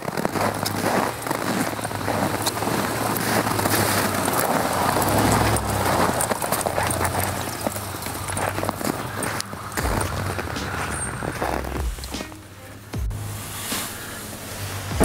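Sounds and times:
snow chains clinking: 0.0 - 15.0
truck engine humming: 0.0 - 15.0
tyres crunching snow: 0.0 - 15.0.

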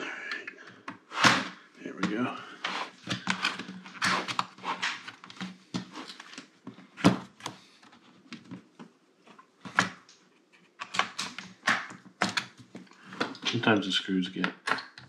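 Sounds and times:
plastic clicks and snaps: 9.7 - 13.6, 14.4 - 15.0.

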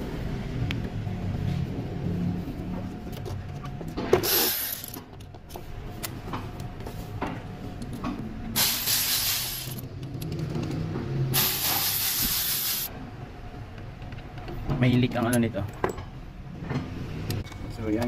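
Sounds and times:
pressurised nozzle hissing: 11.4 - 12.9.

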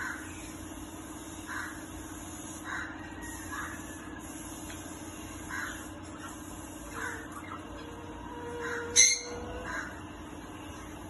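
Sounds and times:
parrots chirping: 5.5 - 10.0
parrot squawking: 6.9 - 10.0.

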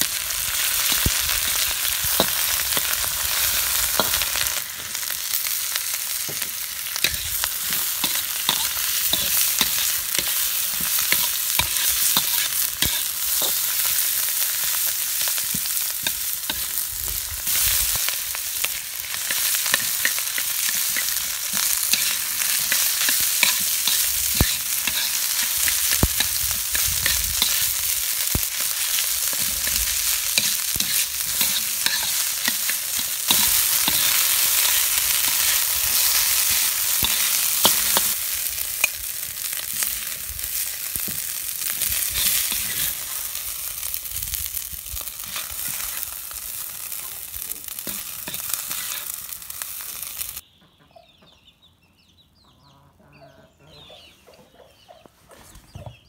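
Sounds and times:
food sizzling in hot oil: 0.0 - 50.4
metal spatula scraping wok: 6.9 - 14.7, 18.7 - 43.9, 47.6 - 49.2.

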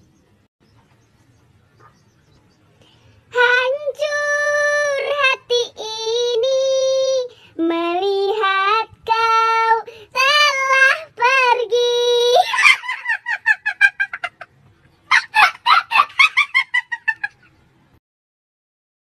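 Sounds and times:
high-pitched voice singing: 3.3 - 12.6.

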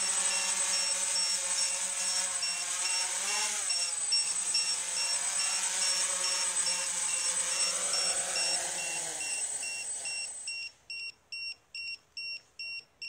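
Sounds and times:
drone motors winding down: 0.0 - 10.6
electronic beeper pips: 3.7 - 10.7.

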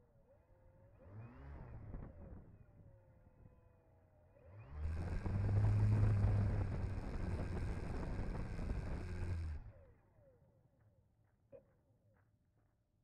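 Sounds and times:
model airplane engine revving: 4.8 - 9.7.

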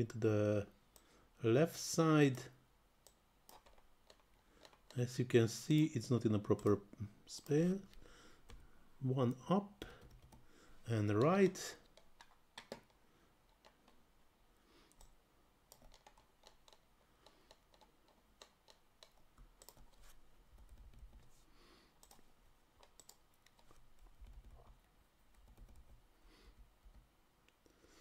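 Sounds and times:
computer keyboard and mouse clicking: 3.0 - 5.0, 9.9 - 10.4, 11.2 - 14.0, 14.9 - 21.4, 22.0 - 26.0.

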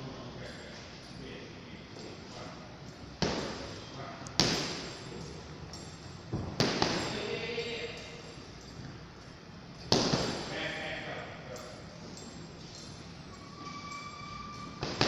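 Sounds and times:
boxing gloves hitting heavy bag: 3.2 - 3.8, 4.4 - 4.9, 6.3 - 7.4, 9.9 - 10.5.

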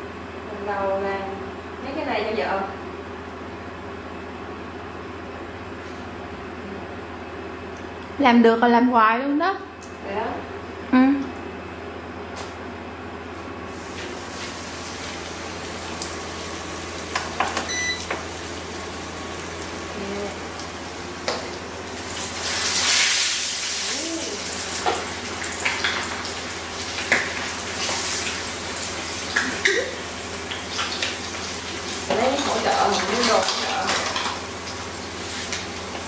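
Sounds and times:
short beep: 17.7 - 18.1
water running into a sink: 21.4 - 36.0.

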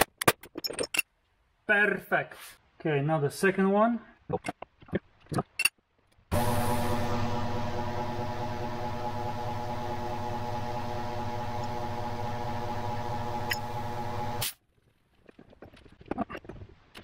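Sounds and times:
mechanical drone: 6.3 - 14.4.

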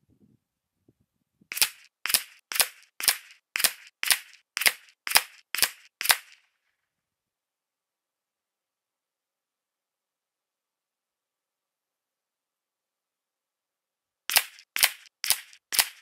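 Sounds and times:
sharp gunshot cracks: 1.5 - 6.4.

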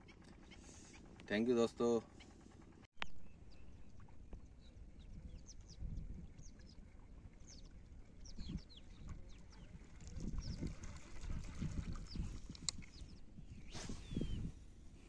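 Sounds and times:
small birds chirping: 7.4 - 10.7, 12.0 - 14.6.

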